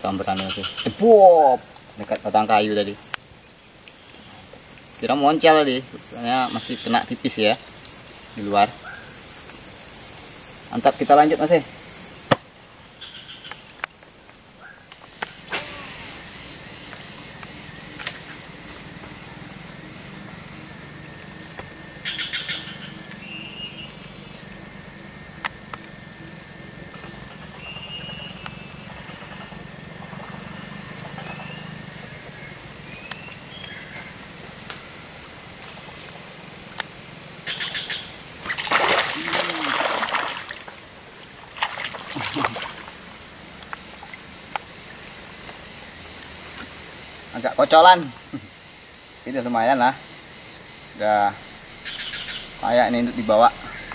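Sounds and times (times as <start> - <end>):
birds chirping: 0.0 - 9.4, 12.9 - 13.8, 18.6 - 24.6, 27.0 - 34.3, 37.4 - 38.2, 50.0 - 53.9
high insect drone: 0.0 - 53.9
steady high-pitched whine: 0.0 - 53.9
fish thrashing: 38.4 - 43.1
water splashing: 38.4 - 43.2.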